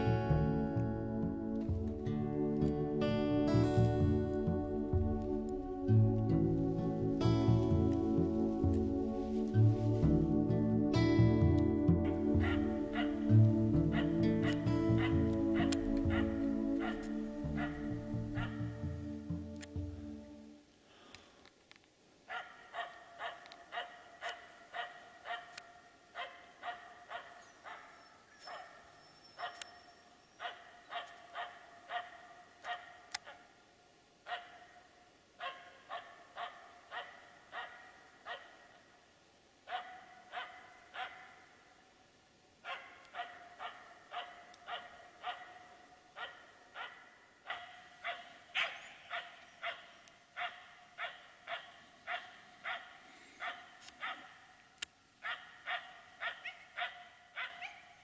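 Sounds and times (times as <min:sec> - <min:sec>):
dog barking rapidly: 0:12.4 - 0:13.3, 0:13.9 - 0:18.6, 0:22.3 - 0:29.6, 0:30.4 - 0:33.5, 0:34.3 - 0:34.8, 0:35.4 - 0:38.7, 0:39.7 - 0:41.5, 0:42.6 - 0:54.5, 0:55.2 - 0:58.0.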